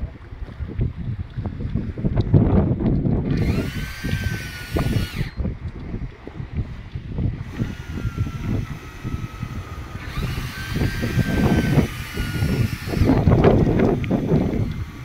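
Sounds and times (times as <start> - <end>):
fishing reel whirring: 3.2 - 5.9, 6.6 - 15.0.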